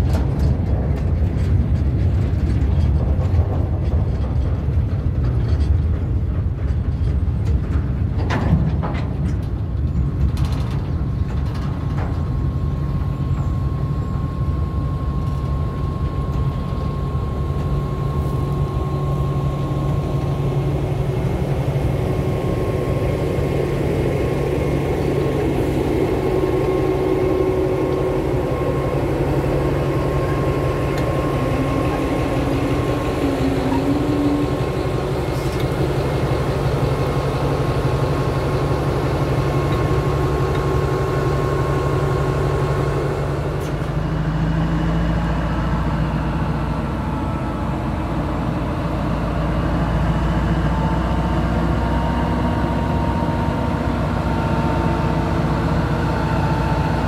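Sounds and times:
locomotive engine droning: 0.0s - 57.0s
thin steady whine: 11.8s - 57.0s.

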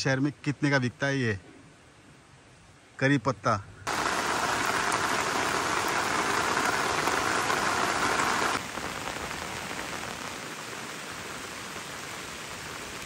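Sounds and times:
steady rain: 3.9s - 13.0s.

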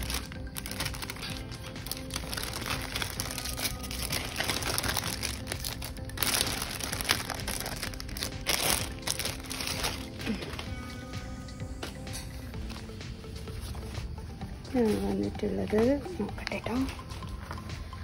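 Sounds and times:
newspaper crinkling: 0.0s - 10.7s
plastic bag crinkling: 0.0s - 10.7s
soft background music: 0.0s - 18.0s.

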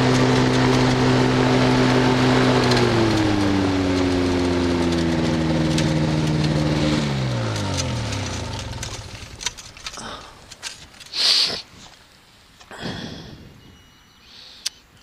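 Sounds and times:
small aircraft engine running: 0.0s - 11.1s.

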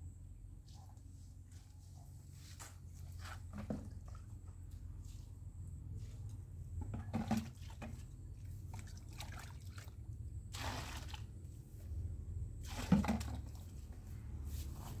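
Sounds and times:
liquid sloshing in a bucket: 3.4s - 4.5s, 6.3s - 11.7s, 12.5s - 14.0s.

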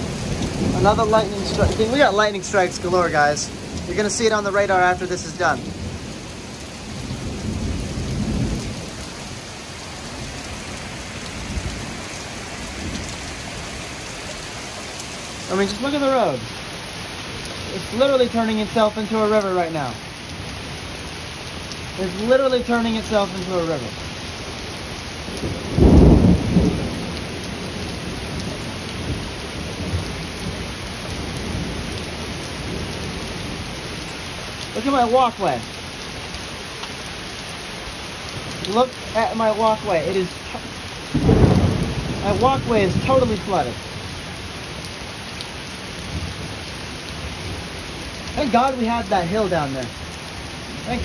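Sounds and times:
low thunder rumble: 0.0s - 13.9s, 25.3s - 33.8s, 38.4s - 44.0s
heavy rain pouring: 0.0s - 51.0s
deep thunder clap: 25.4s - 27.3s, 41.1s - 43.7s.

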